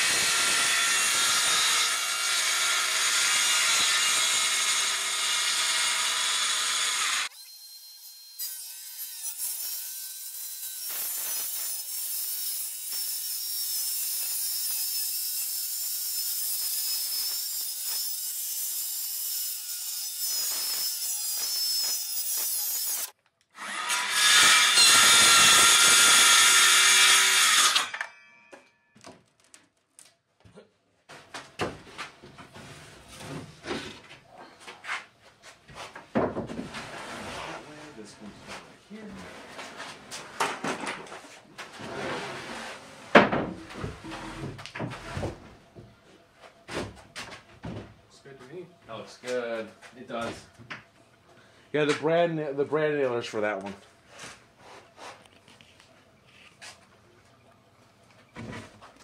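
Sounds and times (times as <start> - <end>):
circular saw cutting plywood: 0.0 - 28.0
plywood sheets knocking and scraping: 35.7 - 37.6, 39.4 - 45.9.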